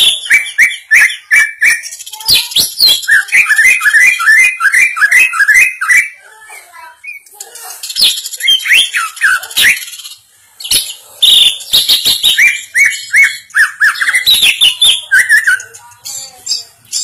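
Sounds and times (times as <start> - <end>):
bird whistling rapid notes: 11.2 - 15.7.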